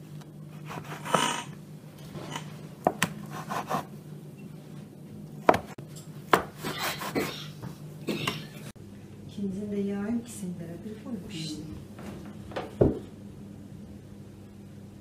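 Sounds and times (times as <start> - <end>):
knife scraping: 0.5 - 1.6, 3.2 - 3.9, 6.5 - 7.4.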